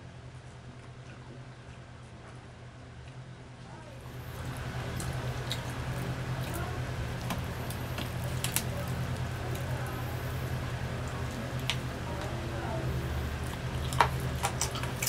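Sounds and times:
steady low hum: 0.0 - 15.0
fried skin crackling: 4.0 - 15.0
meat squishing: 4.1 - 15.0.

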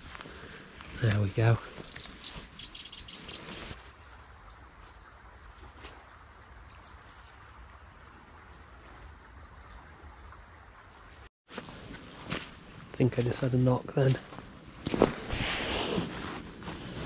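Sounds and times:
small stream flowing: 0.5 - 11.3.

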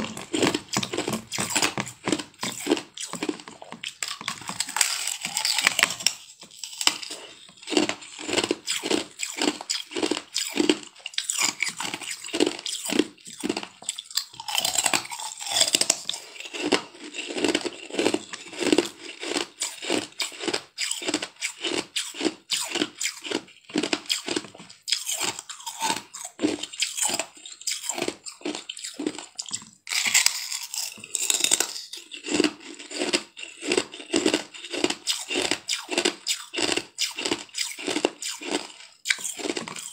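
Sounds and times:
ice crunching being chewed: 0.0 - 39.9.

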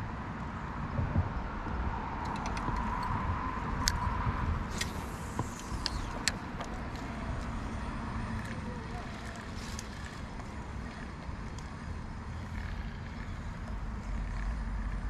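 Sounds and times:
low outdoor rumble: 0.0 - 15.0
sharp clicks: 2.2 - 3.2.

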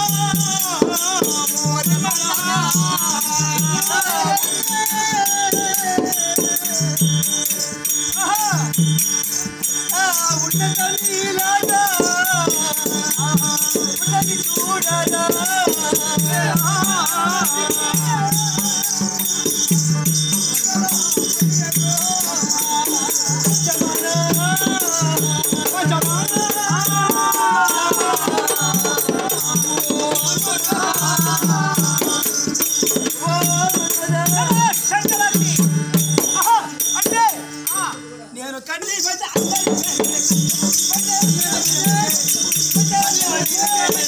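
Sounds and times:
person singing: 0.0 - 7.2, 9.9 - 19.8, 20.5 - 35.8
jingling small percussion: 0.0 - 44.0.

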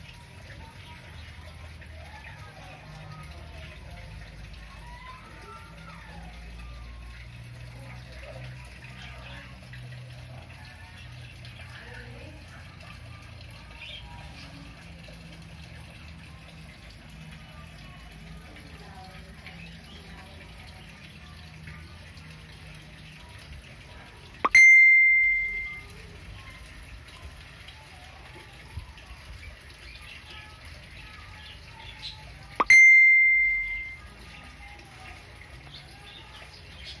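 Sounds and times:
water trickling: 0.0 - 37.0
high dings: 24.4 - 25.9, 32.6 - 34.1.

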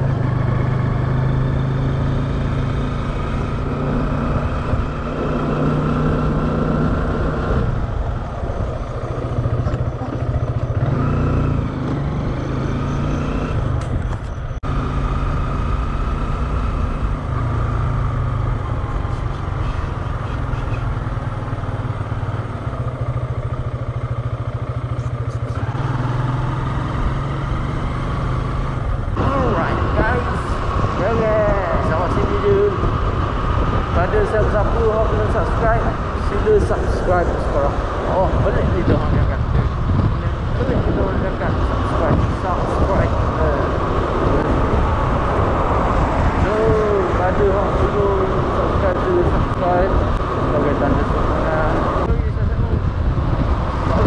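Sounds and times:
road and wind noise: 0.0 - 54.0
motor scooter engine running: 8.9 - 12.0.

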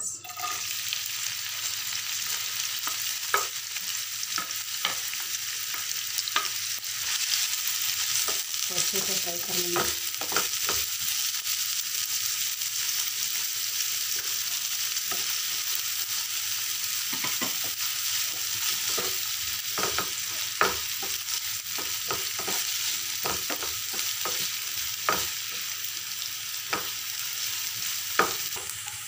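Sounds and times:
onions sizzling in hot oil: 0.0 - 29.0
spatula scraping and knocking pan: 17.1 - 25.7.

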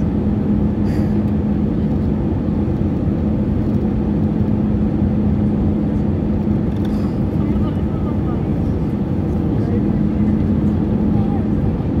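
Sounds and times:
jet engine and airflow rush: 0.0 - 12.0
steady cabin hum: 0.0 - 12.0.

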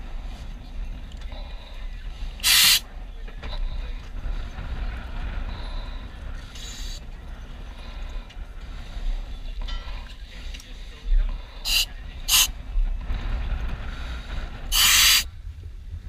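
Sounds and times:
steady low rumble: 0.0 - 16.0
compressed air hissing: 2.4 - 2.9, 6.4 - 7.0, 11.6 - 12.6, 13.9 - 15.3.

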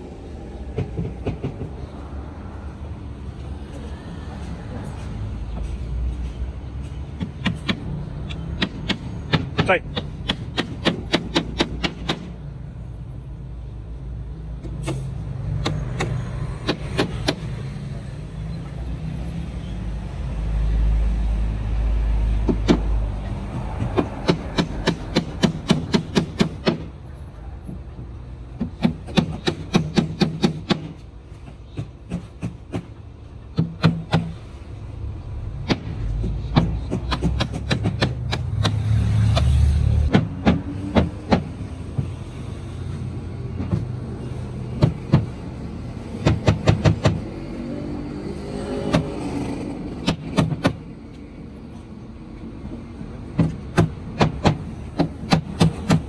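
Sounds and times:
hammer nailing wood: 7.2 - 12.3, 15.6 - 17.4, 22.4 - 22.9, 23.5 - 26.9, 28.6 - 31.0, 33.5 - 34.4, 35.6 - 38.8, 40.1 - 41.5, 44.8 - 45.3, 46.2 - 47.2, 50.0 - 50.8, 53.4 - 56.0.

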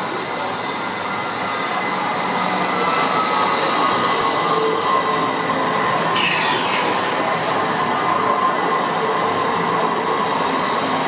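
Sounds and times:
tram wheels rumbling on rails: 0.0 - 11.0.

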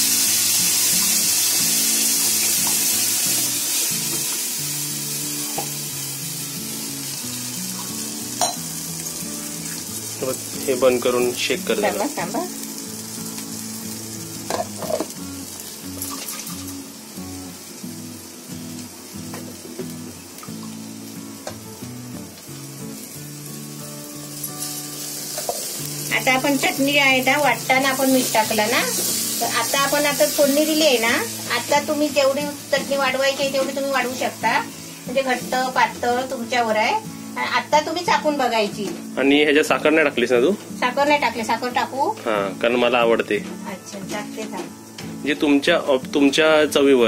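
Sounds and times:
chutney sizzling in hot oil: 0.0 - 47.0
utensil knocking on pan: 14.5 - 15.2.

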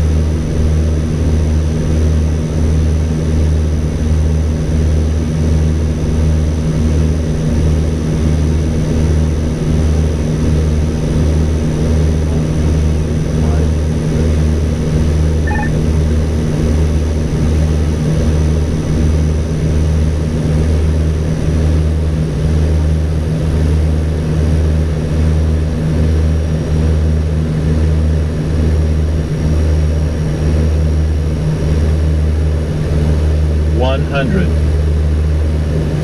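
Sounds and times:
turboprop engines droning: 28.7 - 36.0.

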